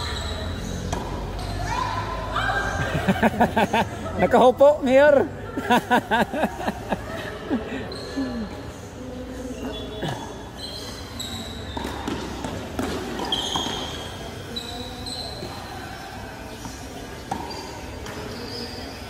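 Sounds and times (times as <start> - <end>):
shoe squeaks: 0.0 - 1.9, 7.8 - 8.7, 9.4 - 19.0.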